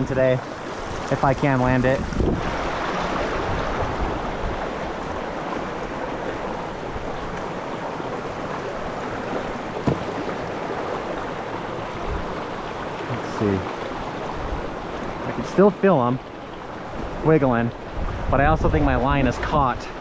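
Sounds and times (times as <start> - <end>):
creek water rushing: 0.0 - 20.0
short sharp knock: 9.8 - 10.1.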